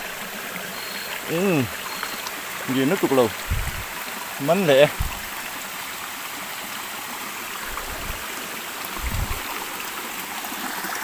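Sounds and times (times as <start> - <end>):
stream water over stones: 0.0 - 11.0
low thumps: 3.4 - 3.9, 4.9 - 5.4, 9.0 - 9.5.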